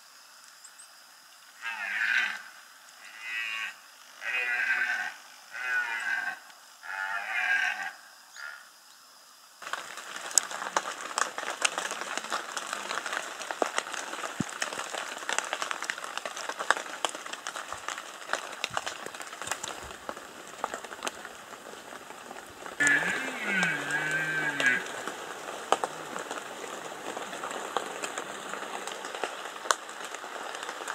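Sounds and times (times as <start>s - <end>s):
deer stag roaring: 3.0s - 8.6s, 22.8s - 25.1s
steady rain: 9.3s - 30.9s
drips falling on foliage: 9.6s - 30.9s.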